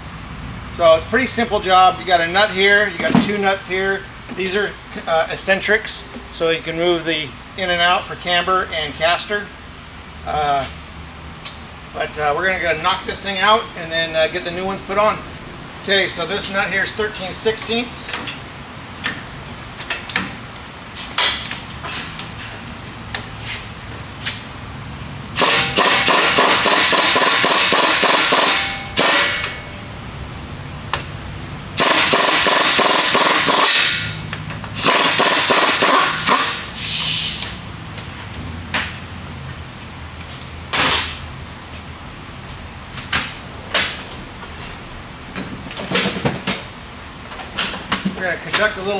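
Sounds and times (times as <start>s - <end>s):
impact wrench hammering: 25.4s - 29.7s, 31.8s - 36.7s.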